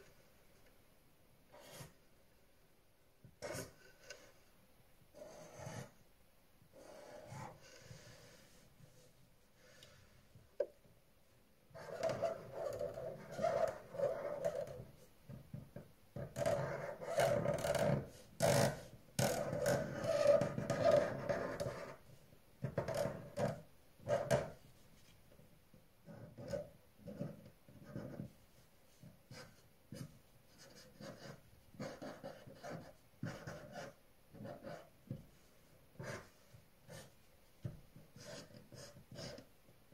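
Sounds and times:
pen scratching on paper: 1.5 - 2.0, 3.4 - 4.4, 5.1 - 6.0, 6.7 - 9.0, 11.8 - 14.8, 16.4 - 18.1, 18.7 - 22.0, 26.1 - 28.3, 29.0 - 35.0, 36.0 - 37.2, 38.1 - 39.5.

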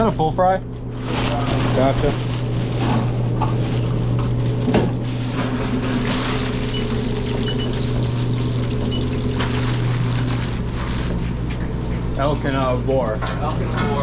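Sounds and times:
fries sizzling in deep fryer oil: 5.0 - 10.8.

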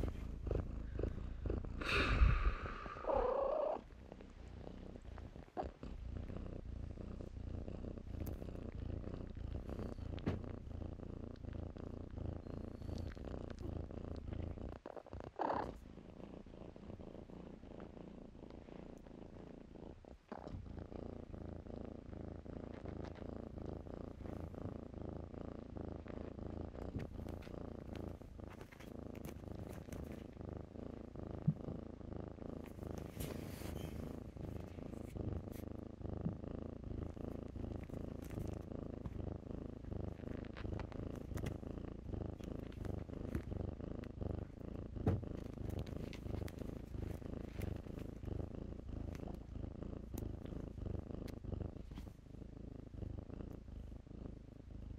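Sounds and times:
kitten purring: 0.0 - 54.9.

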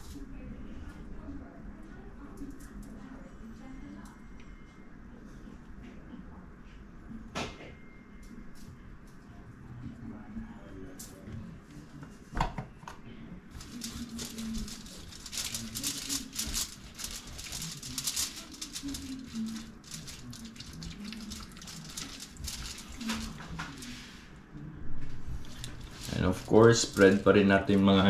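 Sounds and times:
plastic and foil rustling: 13.5 - 24.3, 25.2 - 28.0
hands rubbing meat: 13.6 - 24.1.

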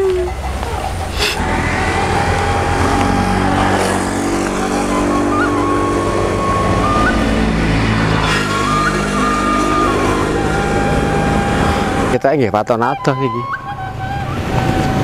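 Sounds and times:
motorcycles passing on road: 0.0 - 15.0.

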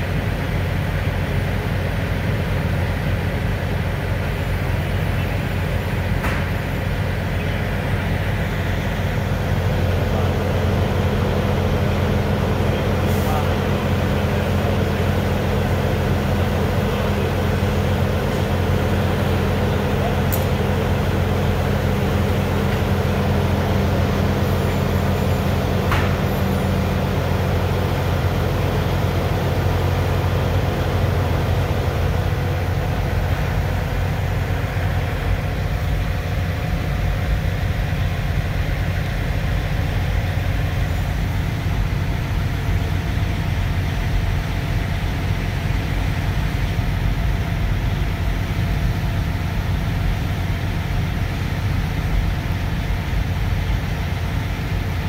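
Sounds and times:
low engine rumble: 0.0 - 55.0
brief click: 20.3 - 20.6.

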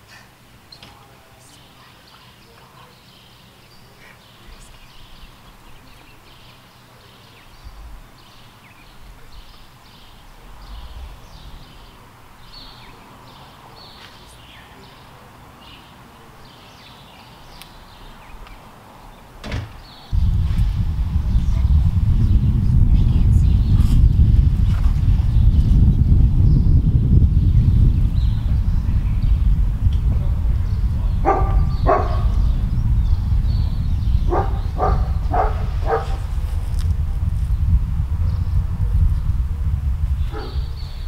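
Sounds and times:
wind rumble on microphone: 7.4 - 13.4, 19.6 - 41.0
microphone handling rumble: 7.5 - 12.8, 19.8 - 41.0.

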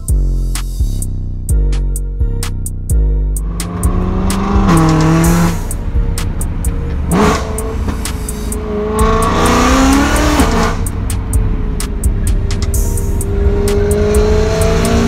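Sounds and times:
car engine revving in cabin: 3.4 - 15.0.

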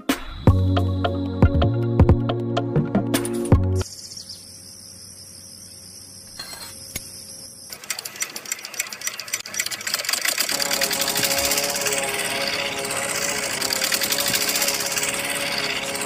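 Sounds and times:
background music: 0.0 - 3.8, 10.5 - 16.0
faint high whine: 3.8 - 7.8, 10.5 - 16.0
toy motor clattering: 6.4 - 16.0.

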